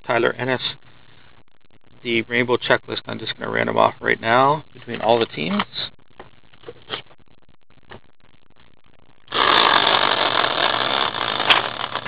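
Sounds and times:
caster wheel whirring: 9.3s - 12.0s.

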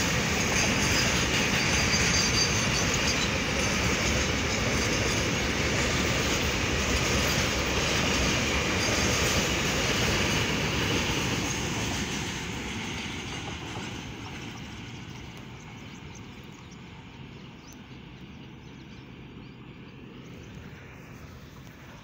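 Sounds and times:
train wheels rumbling on rails: 0.0s - 22.0s.

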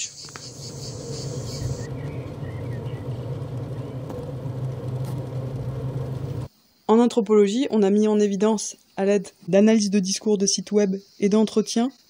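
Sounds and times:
high pulsing chirp: 0.0s - 4.1s
steady low hum: 0.4s - 6.5s.

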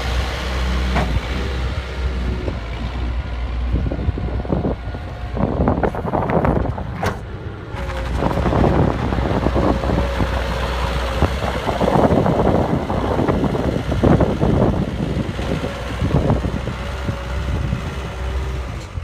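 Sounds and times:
diesel engine running: 0.0s - 19.0s
knocks and rattles: 6.4s - 10.4s.

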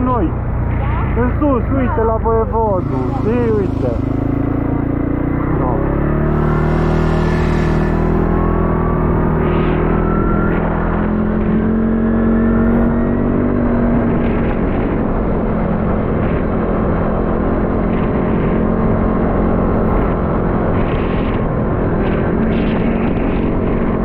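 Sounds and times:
atv engine running: 0.0s - 24.0s
wind and road noise: 0.0s - 24.0s.

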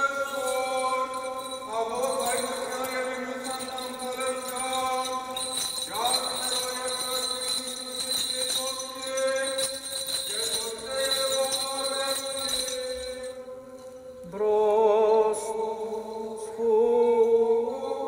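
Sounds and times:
small bells jingling: 0.0s - 14.1s
liturgical chant with held notes: 0.0s - 18.0s.

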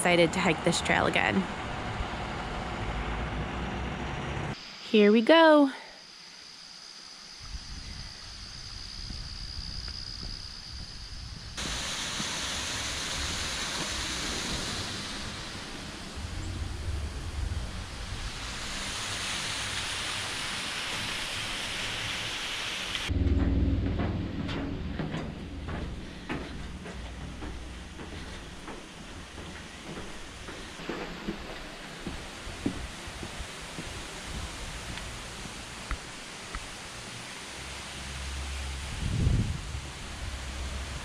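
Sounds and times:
footsteps on stone steps: 25.0s - 34.0s.

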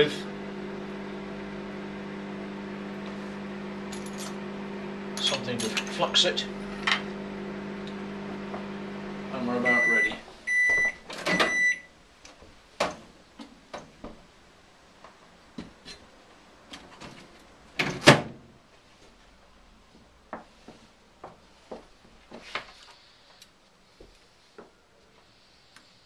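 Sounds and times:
microwave beep: 9.6s - 11.9s
microwave door opening: 10.6s - 11.7s.

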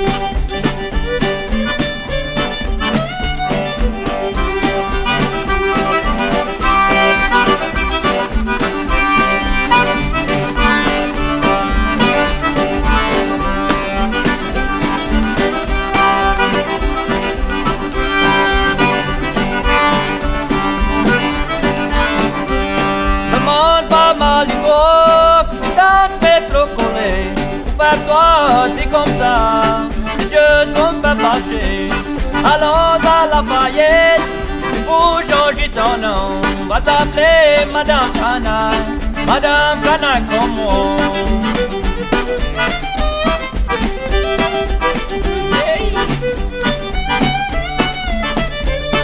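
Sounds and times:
sliding pitch melody line: 0.0s - 25.0s
button accordion: 0.0s - 49.0s
fiddle: 0.0s - 49.0s
guitar: 0.0s - 49.0s.

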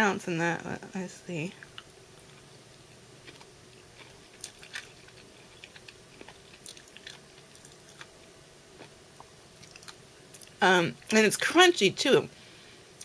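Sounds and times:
person chewing crunchy chocolate: 1.6s - 10.6s.

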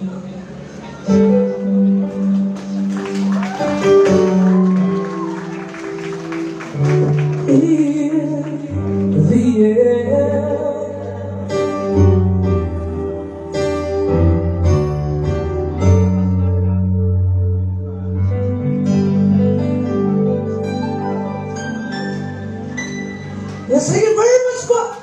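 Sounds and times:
electric keyboard chords: 0.7s - 24.6s
man singing: 7.5s - 11.6s.

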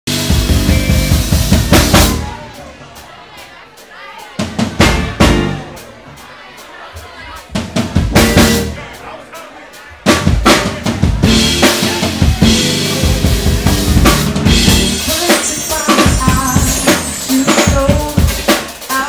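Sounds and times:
drum kit: 0.0s - 19.0s
bass guitar: 0.1s - 2.5s, 4.6s - 5.8s, 7.9s - 8.9s, 10.1s - 18.4s.

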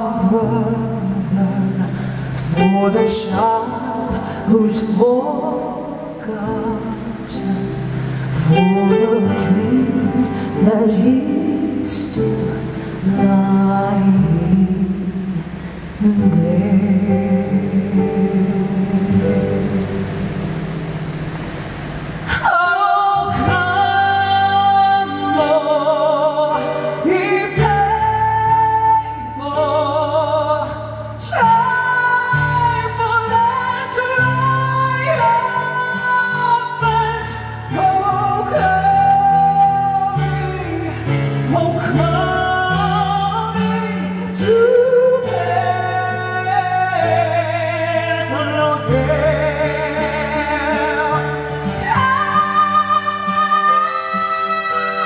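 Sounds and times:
woman singing with vibrato: 0.0s - 55.0s
rock band playing: 19.2s - 22.4s.

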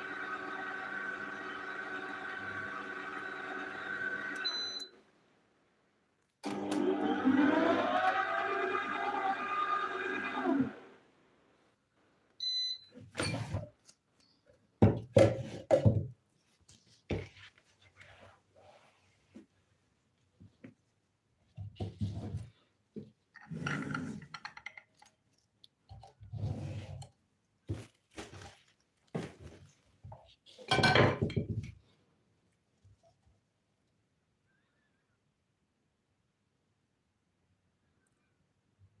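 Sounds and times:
juicer motor whining: 0.0s - 4.6s, 6.4s - 11.0s
items knocking and clinking on table: 14.8s - 16.2s, 30.7s - 31.8s.

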